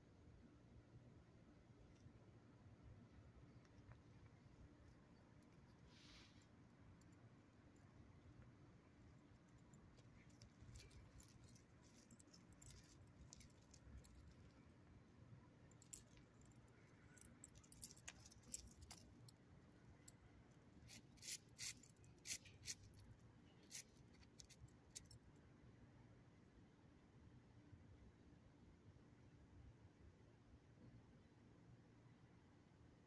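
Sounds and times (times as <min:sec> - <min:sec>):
dog collar tags jingling: 0:09.4 - 0:14.6, 0:15.8 - 0:19.4.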